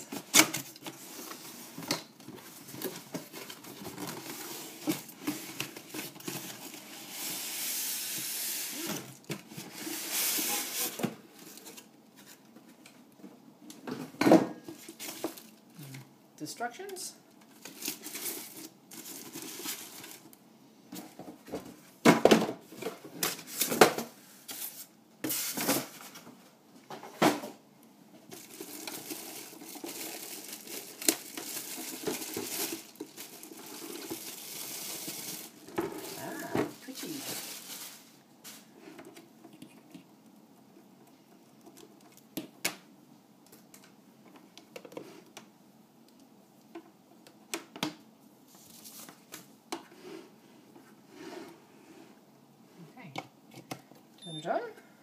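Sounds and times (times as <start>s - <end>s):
plastic and cardboard crinkling: 0.0s - 7.4s, 14.6s - 15.7s, 17.4s - 20.4s, 28.2s - 42.6s, 48.5s - 49.5s
packaging rustling: 17.5s - 20.4s, 28.2s - 38.7s.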